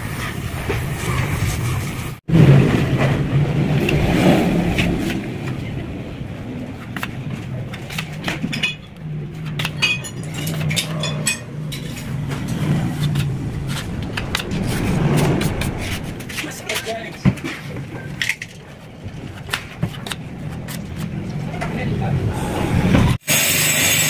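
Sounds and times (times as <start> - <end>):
steady low drone: 8.9 - 19.4.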